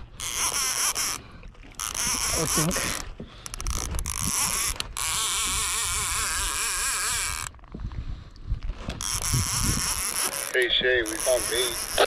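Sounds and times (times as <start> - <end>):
fishing reel drag buzzing: 0.0 - 7.6, 9.0 - 12.0.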